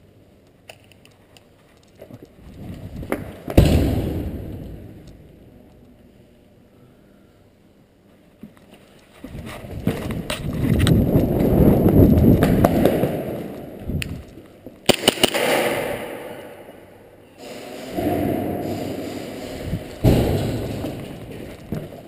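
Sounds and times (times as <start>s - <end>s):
sharp cracks: 12.3s - 16.8s.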